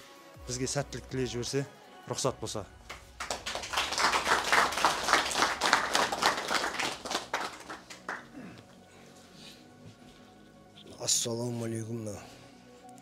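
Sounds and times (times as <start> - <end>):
men applauding: 2.8 - 8.6.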